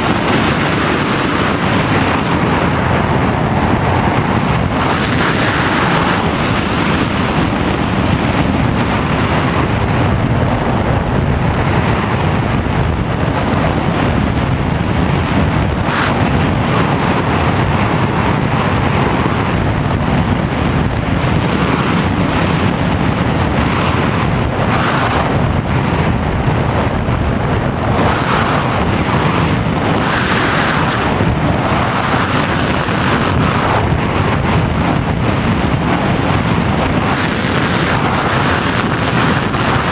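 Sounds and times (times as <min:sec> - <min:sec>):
airflow over microphone: 0:00.0 - 0:39.9.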